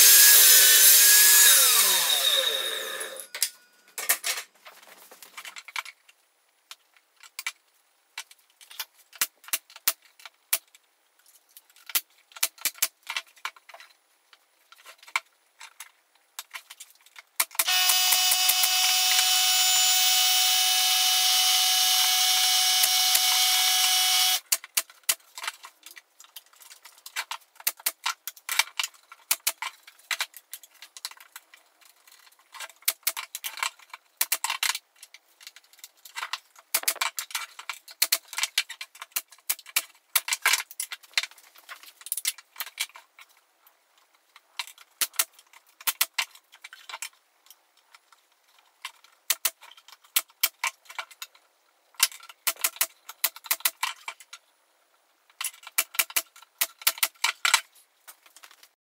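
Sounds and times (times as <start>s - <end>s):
power tool motor running: 0.0s - 3.3s, 17.7s - 24.4s
wooden panels clicking and knocking: 35.4s - 43.3s.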